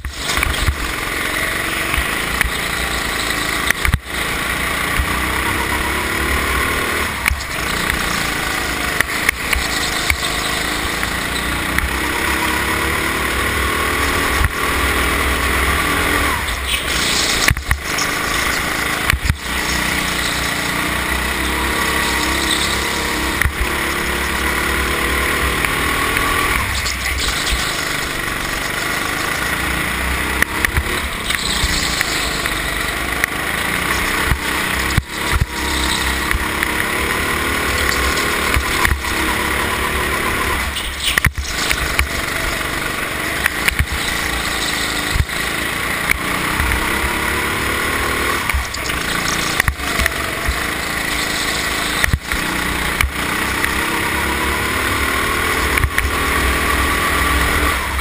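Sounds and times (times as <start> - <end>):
go-kart engine revving: 0.0 - 58.0.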